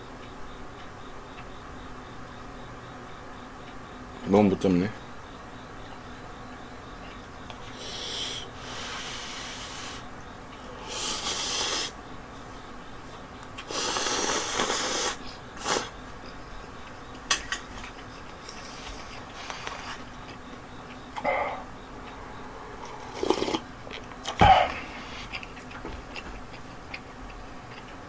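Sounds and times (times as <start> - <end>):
person slurping noodles: 13.7 - 15.9, 23.1 - 23.6.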